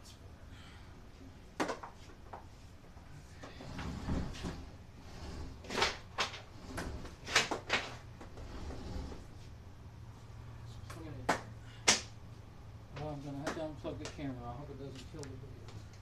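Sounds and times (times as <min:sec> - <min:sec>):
low rumble of refrigerator shifting: 0:02.8 - 0:11.2.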